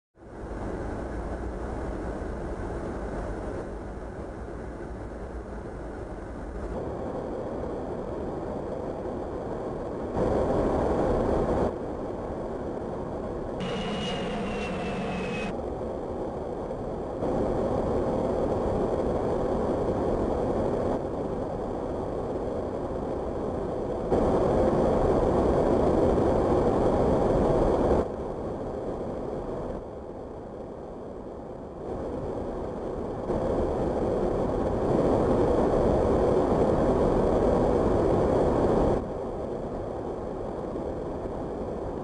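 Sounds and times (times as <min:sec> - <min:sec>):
jet engine and airflow noise: 0:00.2 - 0:42.0
high whine sliding downward: 0:13.6 - 0:15.6.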